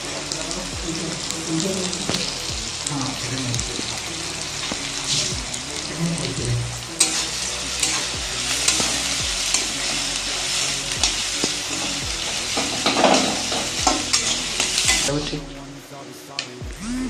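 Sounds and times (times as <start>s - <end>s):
onions sizzling in oil: 0.0s - 15.3s
spatula scraping pan: 7.0s - 15.2s.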